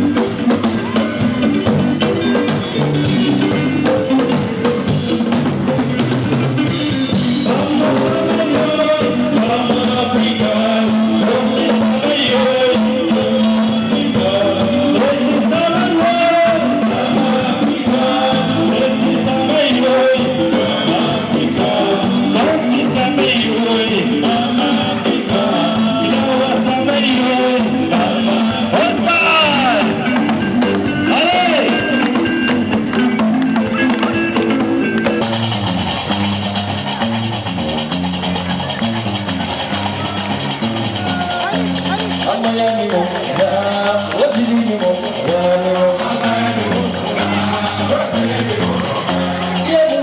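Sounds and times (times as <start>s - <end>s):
live band with guitar: 0.0s - 50.0s
plucked bass lute line: 0.0s - 50.0s
man singing into microphone: 7.2s - 32.4s, 42.2s - 50.0s
handclaps: 32.8s - 35.5s, 36.2s - 45.4s.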